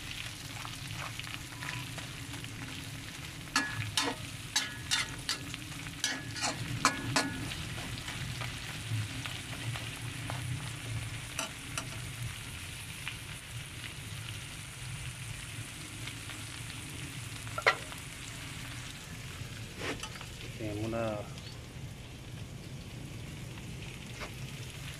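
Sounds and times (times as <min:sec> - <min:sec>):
shrimp sizzling in oil: 0:00.0 - 0:24.9
metal spoon scraping pan: 0:03.6 - 0:07.9, 0:17.6 - 0:17.9.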